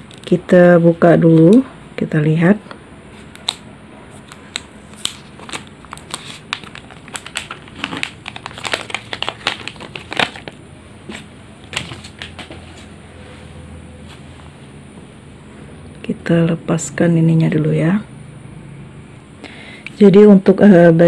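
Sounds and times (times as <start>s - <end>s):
plastic film crinkling: 4.2s - 12.9s.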